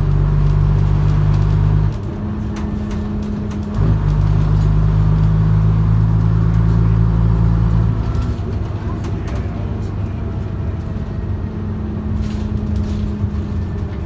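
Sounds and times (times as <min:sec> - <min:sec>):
bus diesel engine: 0:00.0 - 0:14.0.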